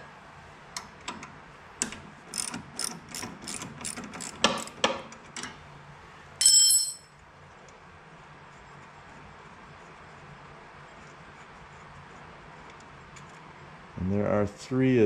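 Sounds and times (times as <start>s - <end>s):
socket ratchet clicking: 1.8s - 5.0s
metallic clatter with ringing tone: 6.4s - 7.1s.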